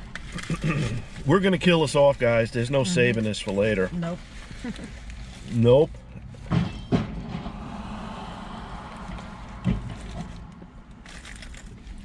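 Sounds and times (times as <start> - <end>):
low cabin rumble: 5.6 - 12.0.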